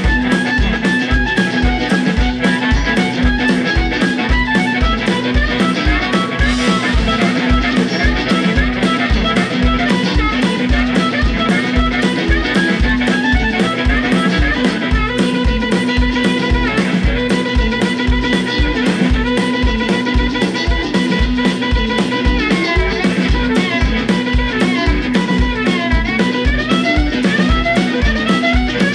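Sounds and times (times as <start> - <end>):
drum kit steady beat: 0.0 - 28.9
electric guitar: 0.0 - 28.9
harmonica: 0.0 - 28.9.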